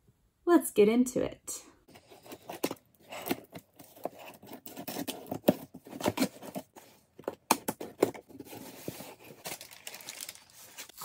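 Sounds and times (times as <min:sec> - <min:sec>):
scissors cutting cardboard: 0:02.2 - 0:08.9.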